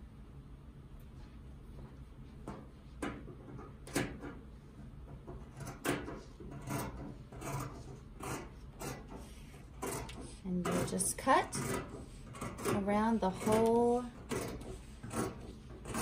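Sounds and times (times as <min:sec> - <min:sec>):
scissors snipping fabric: 0:09.8 - 0:16.0.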